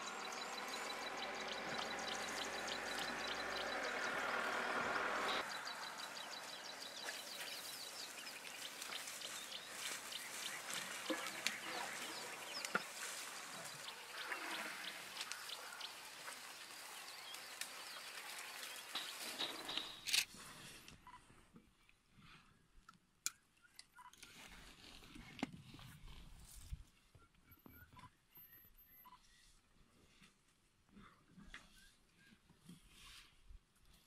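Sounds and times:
faint bird calls: 0.0s - 19.9s.

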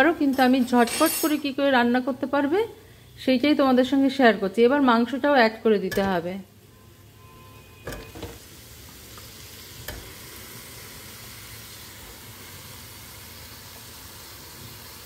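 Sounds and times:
meat sizzling in hot oil: 7.9s - 15.0s.

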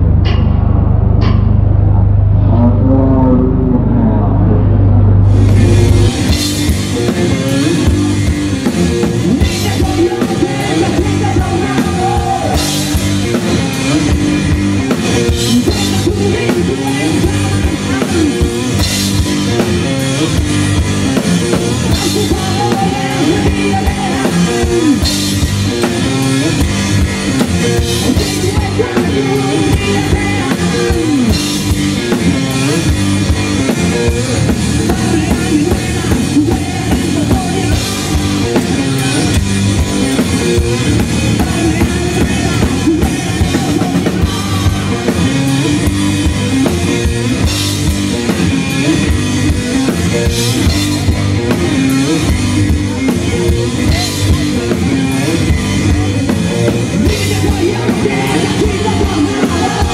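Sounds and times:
drum kit pounding: 0.0s - 2.2s, 4.9s - 59.9s
distorted electric guitar: 0.0s - 59.9s
person singing: 2.4s - 6.5s, 9.3s - 14.2s, 15.4s - 18.8s, 21.9s - 25.2s, 27.7s - 31.7s, 34.0s - 39.4s, 40.2s - 46.0s, 53.0s - 59.9s.

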